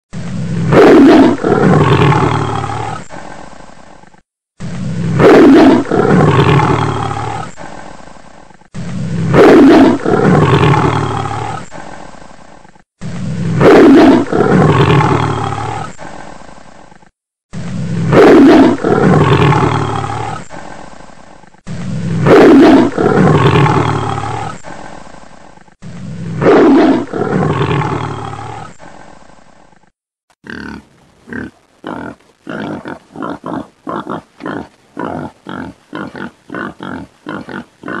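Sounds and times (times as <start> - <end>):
lion roaring: 0.5 - 3.2, 5.0 - 7.6, 8.9 - 11.8, 13.4 - 16.0, 17.9 - 20.6, 21.8 - 24.8, 26.0 - 28.8, 30.5 - 38.0
lion grunting calls: 30.4 - 38.0.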